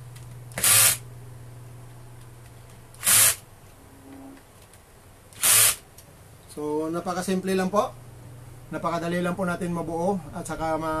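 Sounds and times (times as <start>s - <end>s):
drill driving screws in bursts: 0.5s - 1.0s, 3.0s - 3.4s, 5.3s - 5.8s
drill motor humming: 0.5s - 1.0s, 2.9s - 3.4s, 5.3s - 5.8s.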